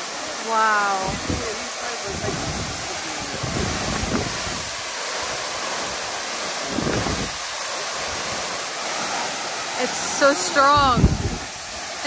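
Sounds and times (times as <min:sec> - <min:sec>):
waterfall rushing: 0:00.0 - 0:12.0
wind buffeting microphone: 0:00.9 - 0:08.4, 0:10.6 - 0:11.9.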